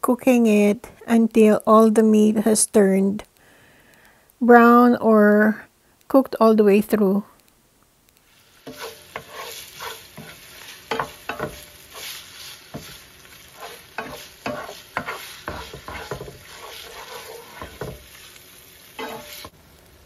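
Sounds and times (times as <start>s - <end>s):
meat sizzling in oil: 8.2s - 20.0s
spatula scraping a pan: 8.3s - 19.6s.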